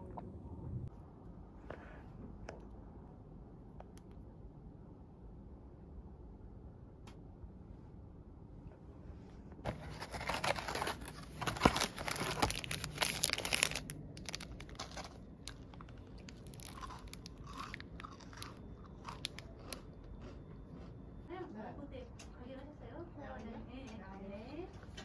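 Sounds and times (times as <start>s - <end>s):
foil wrapper crinkling and tearing: 9.7s - 19.5s
biscuit crunching and chewing: 9.8s - 21.2s.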